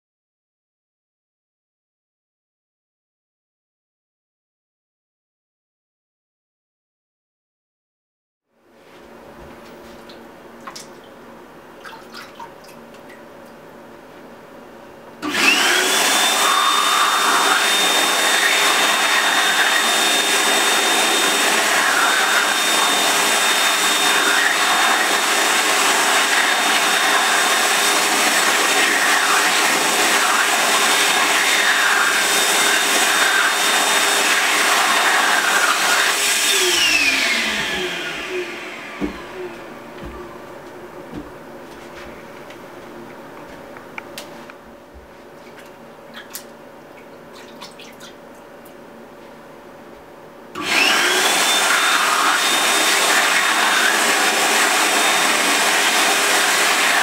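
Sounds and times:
hand dryer whining: 0:15.2 - 0:45.1, 0:50.5 - 0:57.0
hands splashing in water: 0:45.4 - 0:48.2.

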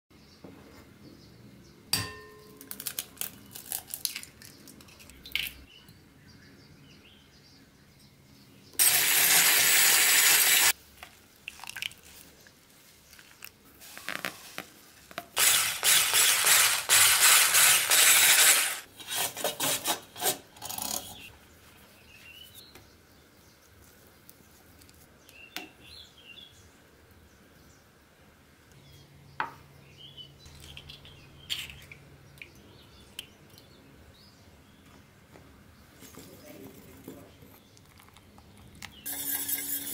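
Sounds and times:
batter scraping in glass bowl: 0:39.1 - 0:39.9
utensils clinking against bowls: 0:39.1 - 0:39.9.

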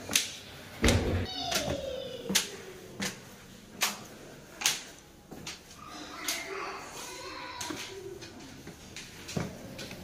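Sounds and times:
footsteps on stone floor: 0:07.6 - 0:10.0.

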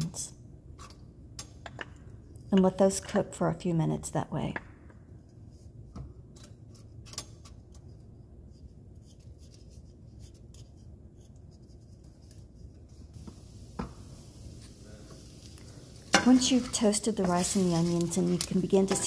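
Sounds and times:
wooden spoon scraping a pan: 0:16.0 - 0:19.0.

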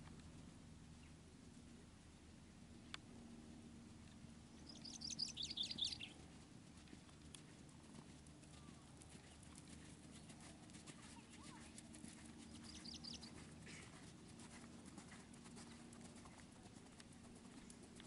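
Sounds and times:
bird chirping: 0:04.5 - 0:06.2, 0:12.5 - 0:13.4
horse hoofbeats on soft ground: 0:04.8 - 0:18.0.

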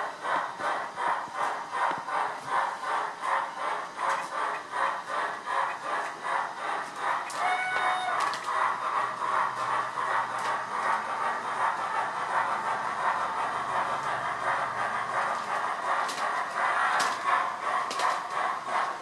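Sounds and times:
steam locomotive exhaust chuffs: 0:00.0 - 0:19.0
steam whistle: 0:07.4 - 0:08.3.

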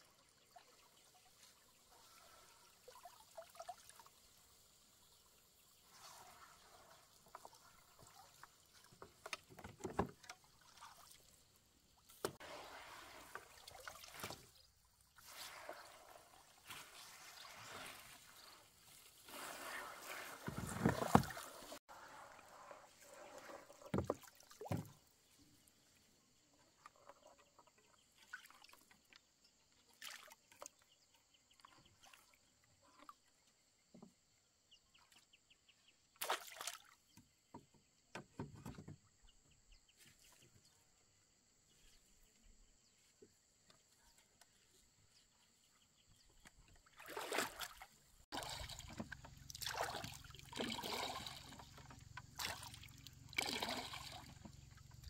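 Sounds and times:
water splashing against boat: 0:05.6 - 0:25.4, 0:46.6 - 0:55.0.

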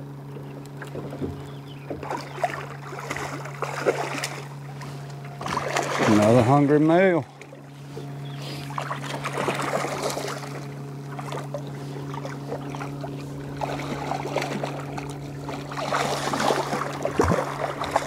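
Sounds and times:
steady low hum: 0:00.0 - 0:18.0
water slapping against hull: 0:00.3 - 0:18.0
fish splashing at surface: 0:02.0 - 0:06.5, 0:08.5 - 0:18.0.

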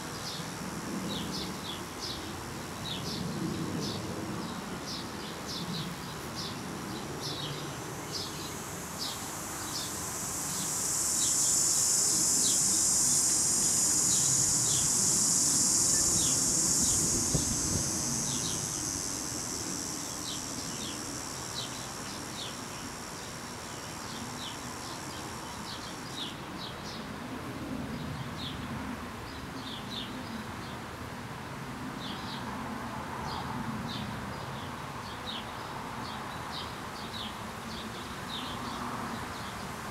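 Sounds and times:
hissing insect buzz: 0:00.0 - 0:03.2, 0:03.8 - 0:26.4.

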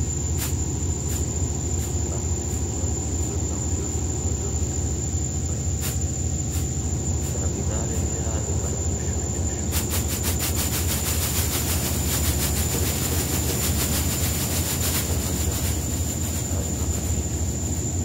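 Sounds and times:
electronic low drone: 0:00.0 - 0:18.0
thin high whine: 0:00.0 - 0:18.0
fast clicking pulse: 0:09.4 - 0:18.0.

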